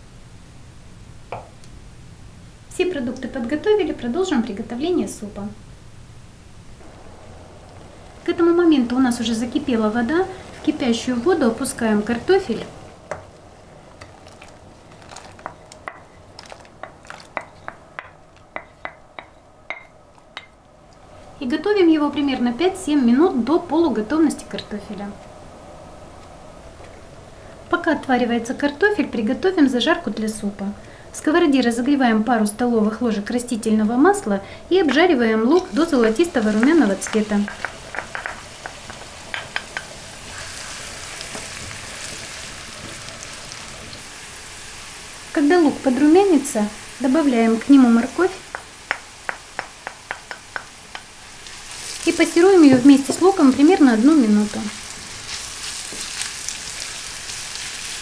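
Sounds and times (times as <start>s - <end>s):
onion sizzling in oil: 1.3s - 19.9s, 31.2s - 58.0s
spoon and bowl knocking on pot: 36.6s - 39.9s, 48.5s - 51.1s.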